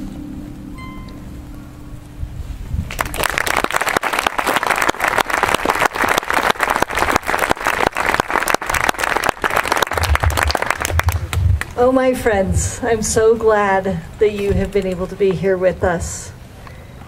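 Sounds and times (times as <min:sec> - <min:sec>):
audience applauding: 0:02.9 - 0:11.8.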